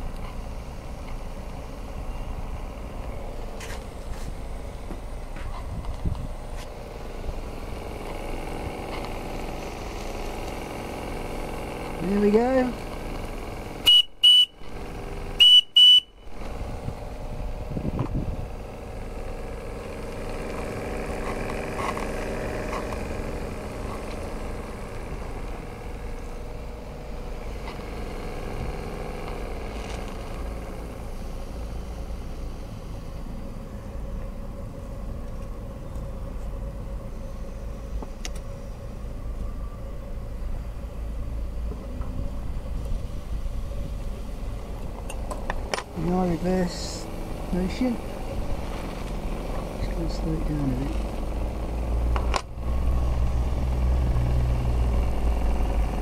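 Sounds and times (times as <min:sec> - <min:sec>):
high whistle tones: 0:13.8 - 0:14.7, 0:15.4 - 0:16.4.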